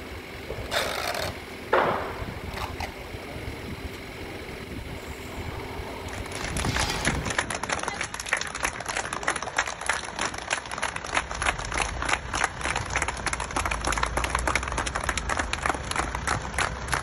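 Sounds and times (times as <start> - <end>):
low rumble: 0.0 - 8.9
crowd clapping: 6.1 - 17.0.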